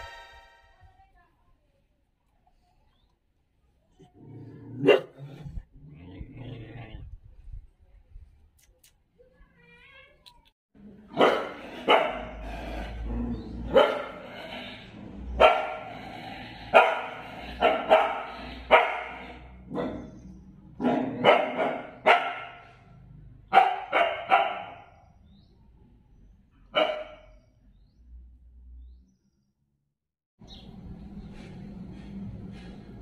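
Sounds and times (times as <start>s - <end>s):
dog barking: 4.8s - 5.2s, 11.1s - 12.4s, 13.7s - 14.3s, 15.4s - 16.0s, 16.7s - 20.1s, 20.8s - 22.8s, 23.5s - 25.0s, 26.7s - 27.4s.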